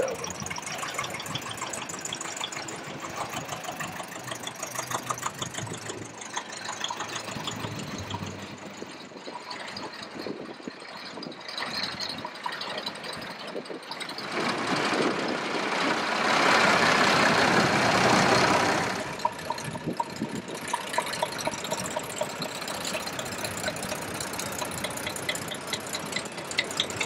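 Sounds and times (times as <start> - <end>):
old tractor engines running: 0.0 - 27.0
light repeating engine knock: 19.2 - 27.0.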